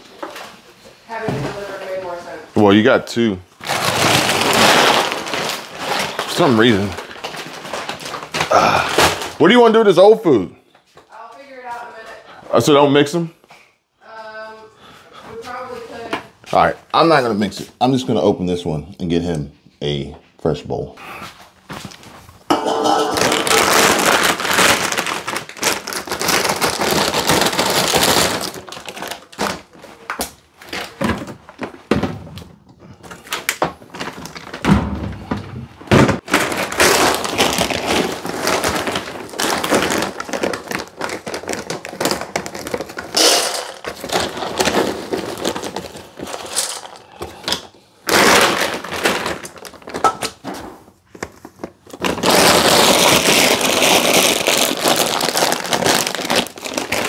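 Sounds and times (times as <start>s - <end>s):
plastic bag crinkling: 0.0s - 9.6s, 21.9s - 31.8s, 33.1s - 34.6s, 36.2s - 57.0s
kibble poured into a bowl: 43.2s - 43.8s, 46.3s - 47.0s.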